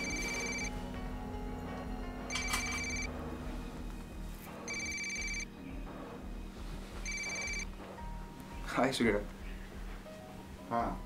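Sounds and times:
phone ringtone: 0:00.0 - 0:00.8, 0:02.3 - 0:03.1, 0:04.6 - 0:05.6, 0:07.0 - 0:07.7.

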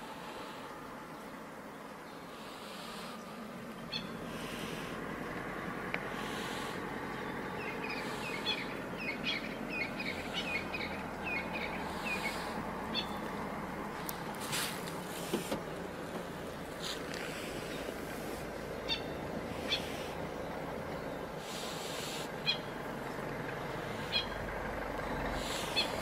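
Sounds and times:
steady low rumble: 0:00.0 - 0:26.0
high chirping calls: 0:03.8 - 0:05.0, 0:06.0 - 0:13.5, 0:18.7 - 0:23.0, 0:23.7 - 0:24.4, 0:25.0 - 0:26.0
rustling bursts: 0:14.0 - 0:18.8.

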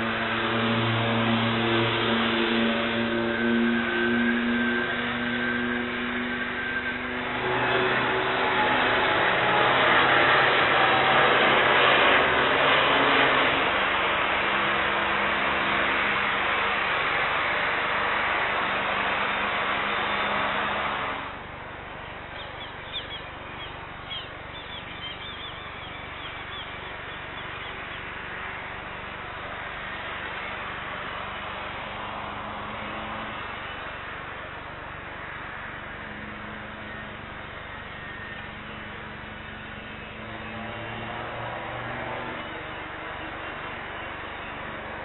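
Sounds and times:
loud engine hum: 0:00.0 - 0:45.0
birds chirping: 0:21.8 - 0:29.8.

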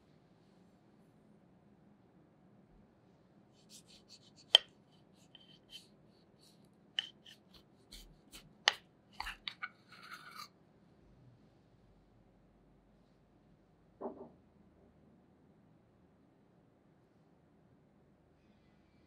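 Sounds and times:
knife cutting crisp pastry: 0:03.6 - 0:10.5.

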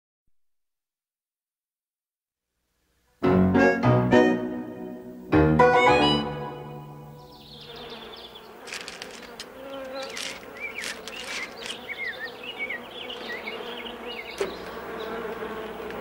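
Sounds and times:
insects buzzing: 0:04.7 - 0:16.0.

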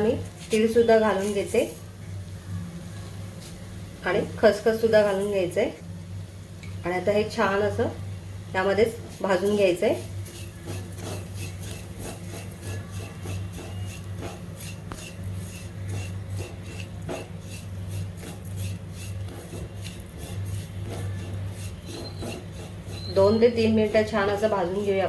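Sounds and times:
spatula scraping roasting seeds: 0:00.0 - 0:01.9, 0:08.9 - 0:25.0
steady low hum: 0:00.0 - 0:25.0.

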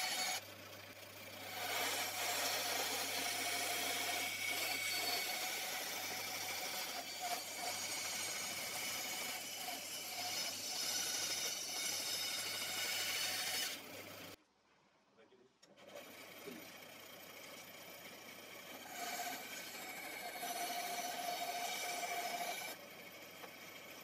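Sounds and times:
band saw cutting wood: 0:00.0 - 0:00.4, 0:01.2 - 0:14.4, 0:15.8 - 0:24.0.

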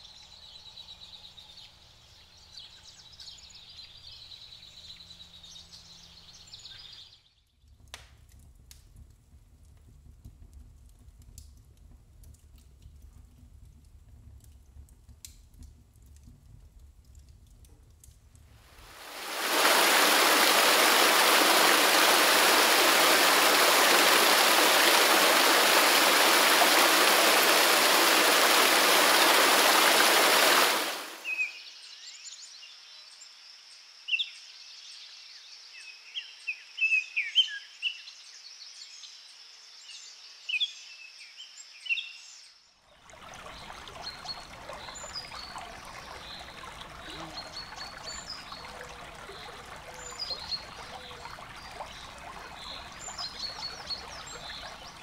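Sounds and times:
small stream trickling: 0:16.8 - 0:31.5, 0:42.9 - 0:55.0
loud rush of water: 0:18.7 - 0:31.3, 0:43.0 - 0:55.0
birds chirping: 0:18.9 - 0:31.5, 0:43.2 - 0:55.0.

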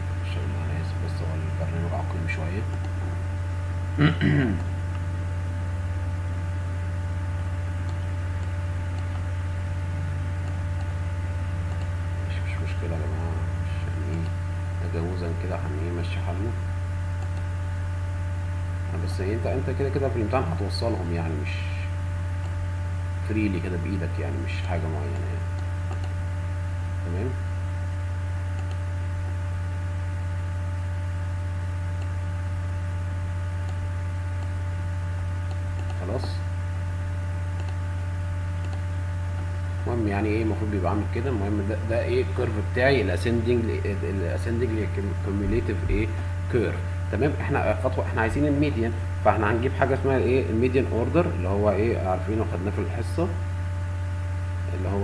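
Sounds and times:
low electrical hum: 0:00.0 - 0:55.0
faint clicks: 0:25.1 - 0:26.2, 0:37.6 - 0:37.8, 0:38.6 - 0:38.8.

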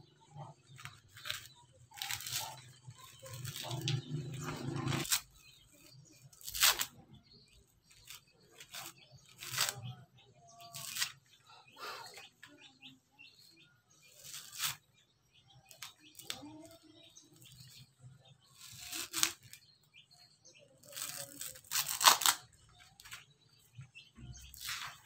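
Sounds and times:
coconut husk fibre tearing: 0:00.6 - 0:07.2, 0:07.8 - 0:12.2, 0:14.1 - 0:15.0, 0:15.6 - 0:17.8, 0:18.4 - 0:20.2, 0:20.8 - 0:23.3, 0:24.2 - 0:25.0.

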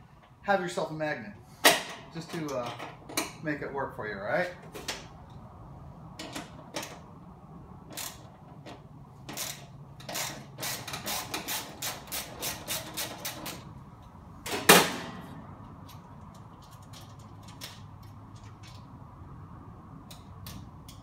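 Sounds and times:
wrench clicking: 0:09.3 - 0:13.6, 0:20.0 - 0:21.0.

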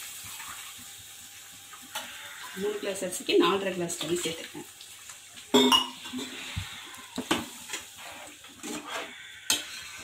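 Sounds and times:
spoon stirring gravy in a pot: 0:06.0 - 0:10.0.

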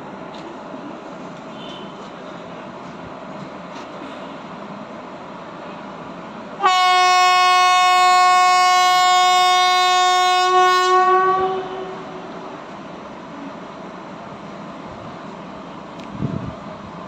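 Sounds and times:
train coaches rumbling: 0:00.0 - 0:17.0
locomotive horn blast: 0:06.6 - 0:12.3.

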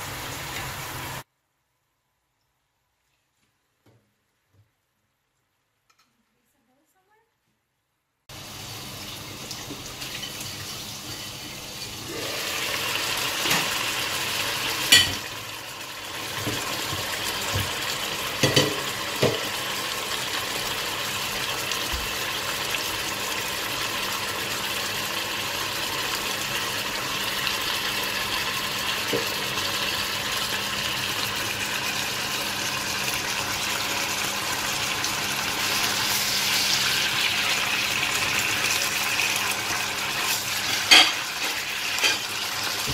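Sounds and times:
curry bubbling and sizzling in a pan: 0:08.3 - 0:42.9
cookware clinking against pan: 0:14.9 - 0:15.3, 0:18.4 - 0:19.5, 0:40.7 - 0:42.3.

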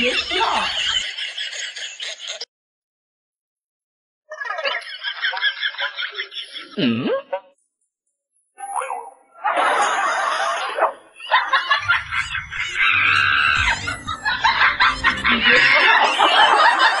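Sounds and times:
loud laughter and snickering: 0:00.0 - 0:02.5, 0:04.4 - 0:06.8, 0:09.4 - 0:17.0.

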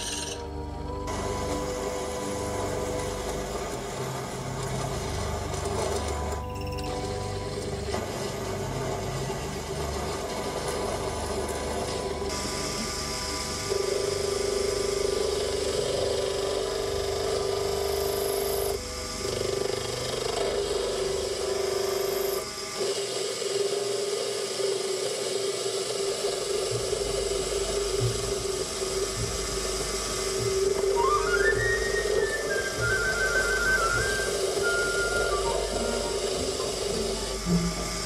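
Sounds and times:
lathe humming: 0:00.0 - 0:38.0
rising high notes: 0:31.0 - 0:37.0.

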